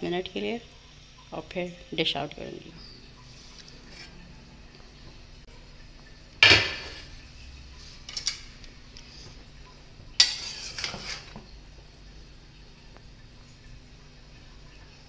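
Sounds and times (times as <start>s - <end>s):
metal utensils clanking on pot: 8.0s - 8.6s, 10.2s - 11.4s.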